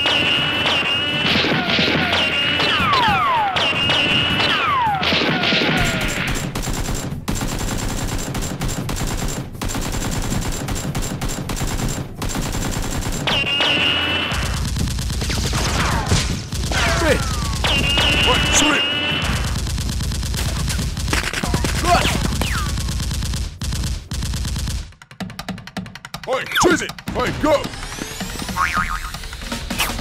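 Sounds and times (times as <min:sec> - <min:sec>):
whistling ricochets: 0:00.0 - 0:06.3, 0:13.3 - 0:14.5, 0:16.8 - 0:19.2
rapid automatic gunfire: 0:00.0 - 0:25.6.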